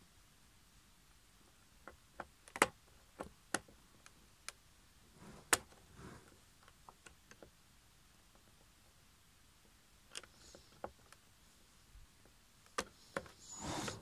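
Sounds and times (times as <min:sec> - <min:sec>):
short scraping sound: 0:13.4 - 0:14.0.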